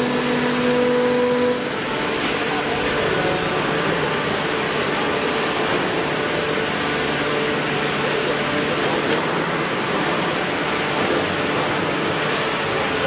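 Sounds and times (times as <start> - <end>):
electric motors humming: 0.0 - 13.0.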